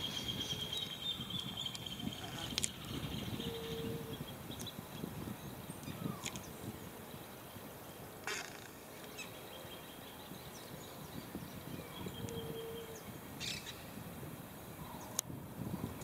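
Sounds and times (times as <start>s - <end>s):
faint bird calls: 0.0s - 7.6s, 8.2s - 13.9s
low hoot: 2.0s - 4.3s, 11.8s - 13.6s.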